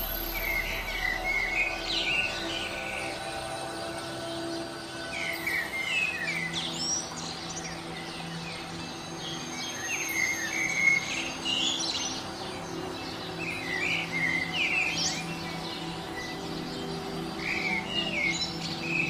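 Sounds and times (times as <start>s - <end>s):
steady low drone: 0.0s - 9.1s
songbirds chirping: 0.0s - 19.0s.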